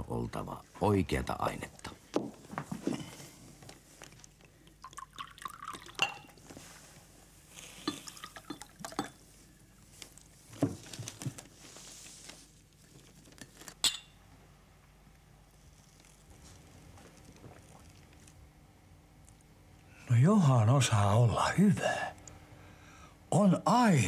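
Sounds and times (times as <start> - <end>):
liquor pouring into glasses: 4.6 - 6.4, 7.7 - 9.2
glasses clinking: 5.2 - 6.4, 7.8 - 9.2, 13.8 - 14.2.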